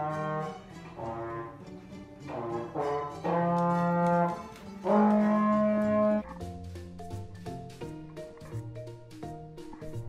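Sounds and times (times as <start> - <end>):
brass instrument held notes: 0.0 - 1.7, 2.3 - 6.2.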